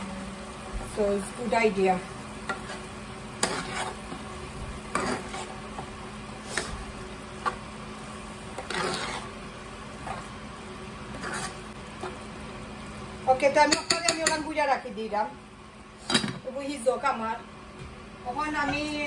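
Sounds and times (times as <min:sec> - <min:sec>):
metal spoon scraping a pot: 0:02.5 - 0:04.2, 0:04.9 - 0:05.6, 0:08.5 - 0:09.4, 0:11.1 - 0:12.2.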